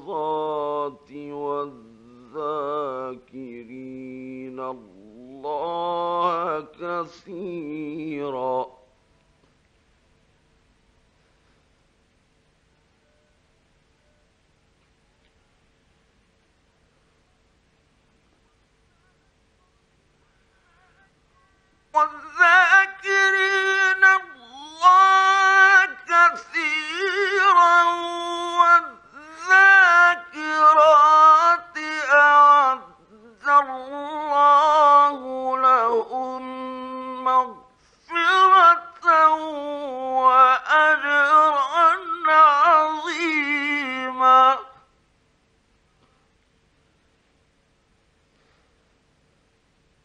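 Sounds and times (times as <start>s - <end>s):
man chanting melodic recitation: 22.0s - 44.8s.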